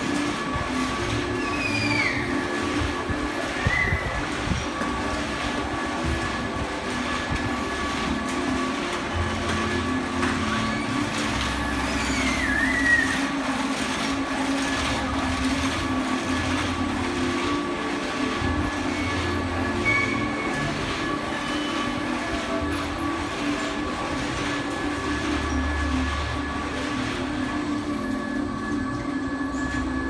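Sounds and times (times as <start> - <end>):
carousel machinery rumble and hum: 0.0 - 30.0
brief squeal: 1.4 - 2.3.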